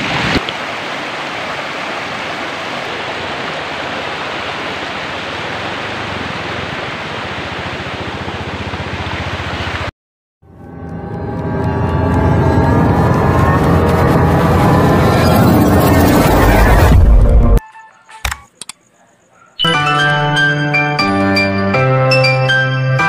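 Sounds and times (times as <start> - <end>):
stream rushing over rocks: 0.0 - 9.9
music: 10.5 - 18.4, 19.6 - 23.0.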